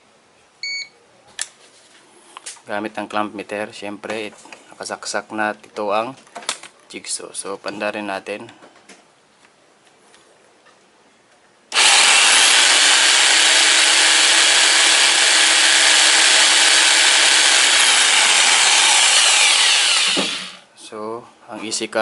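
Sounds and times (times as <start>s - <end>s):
electric jigsaw running: 11.7s - 20.6s.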